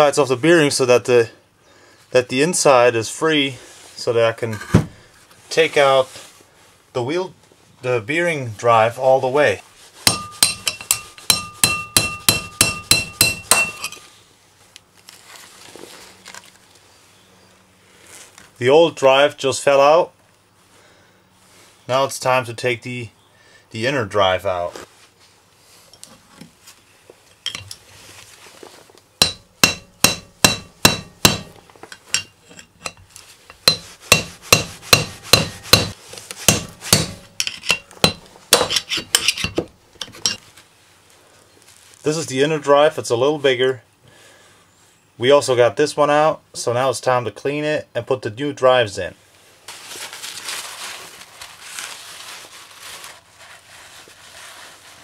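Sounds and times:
hammer striking metal: 10.1 - 14.0, 29.2 - 31.6, 33.6 - 39.6.

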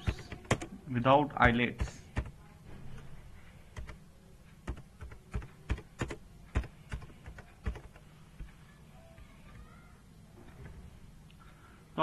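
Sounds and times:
computer keyboard typing: 0.0 - 0.8, 1.4 - 2.4, 3.7 - 4.0, 4.6 - 8.5.

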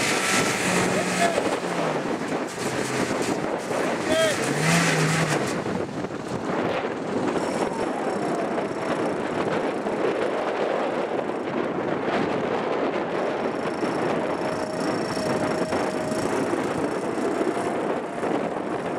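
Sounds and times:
vehicle engine at low revs: 0.0 - 12.2, 13.0 - 18.9.

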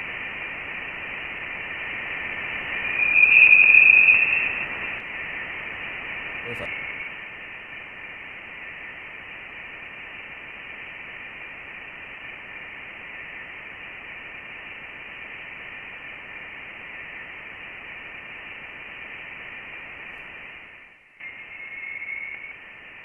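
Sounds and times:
static hiss: 0.0 - 23.0
faint thin tones: 2.8 - 4.8.

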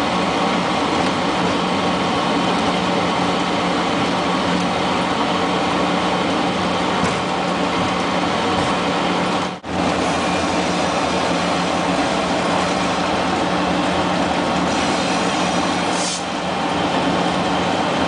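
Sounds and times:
diesel locomotive engine drone: 0.0 - 18.0
short hiss: 14.8 - 16.3.

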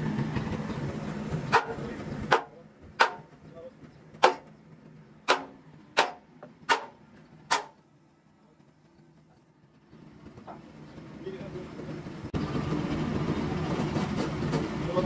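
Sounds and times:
steady background hum: 0.0 - 15.0
hammer striking metal: 1.5 - 3.4, 4.2 - 4.5, 5.2 - 7.8.

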